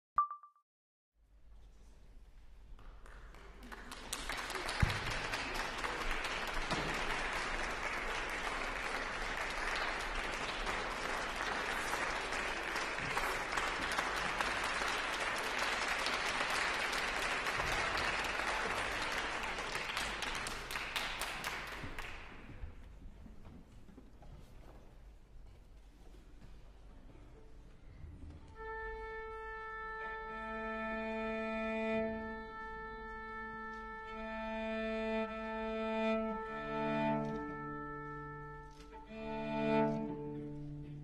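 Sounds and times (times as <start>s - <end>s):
audience applauding: 2.8s - 22.6s.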